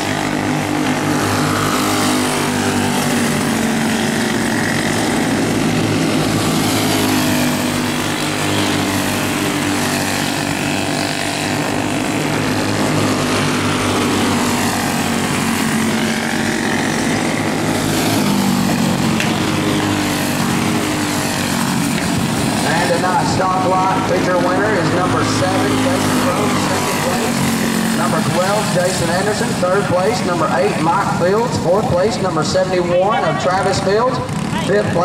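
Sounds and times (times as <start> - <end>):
go-kart engines racing: 0.0 - 35.0.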